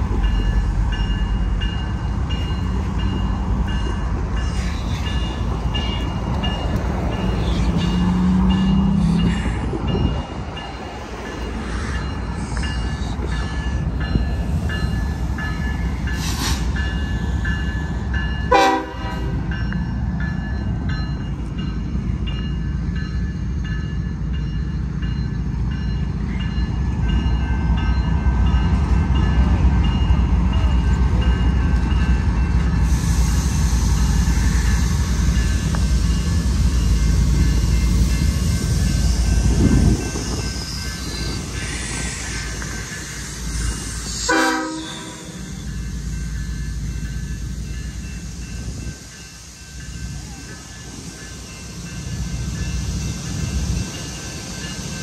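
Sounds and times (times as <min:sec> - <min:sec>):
crossing bells ringing: 0:00.0 - 0:32.9, 0:34.0 - 0:55.0
freight train rumbling: 0:00.0 - 0:55.0
train horn blast: 0:18.5 - 0:19.5, 0:44.2 - 0:45.6.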